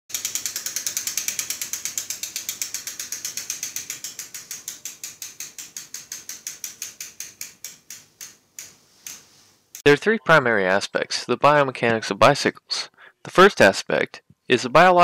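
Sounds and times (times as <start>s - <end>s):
bicycle wheel ratchet clicking: 0.1s - 9.9s.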